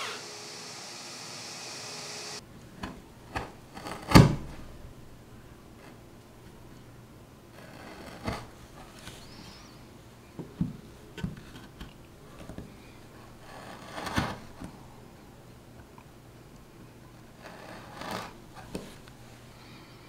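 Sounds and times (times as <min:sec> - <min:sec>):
chisel scraping wood: 0:07.5 - 0:08.6, 0:13.2 - 0:14.5, 0:17.4 - 0:19.0.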